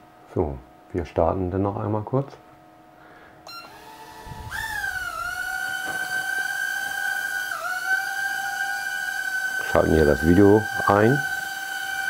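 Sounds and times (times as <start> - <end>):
quadcopter motors whining: 3.4 - 12.0.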